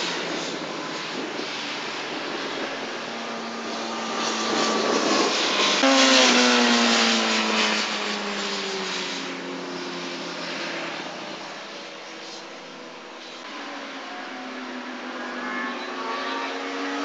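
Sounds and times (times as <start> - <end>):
motorcycle engines revving high: 0.0 - 17.0
motorcycle passing by: 3.2 - 9.4, 14.1 - 17.0.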